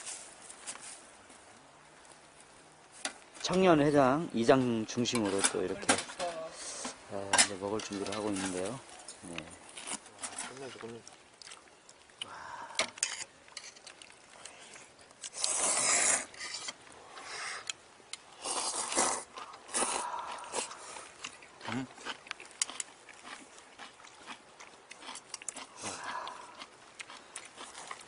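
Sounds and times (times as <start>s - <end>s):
noodles slurped: 13.0s - 17.6s, 18.4s - 28.0s.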